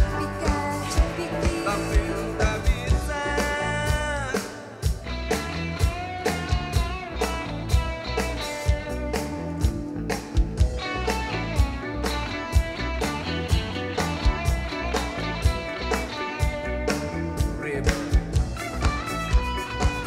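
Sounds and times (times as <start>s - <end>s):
bass guitar: 0.0s - 20.0s
drum kit beat: 0.0s - 20.0s
electric guitars: 0.0s - 20.0s.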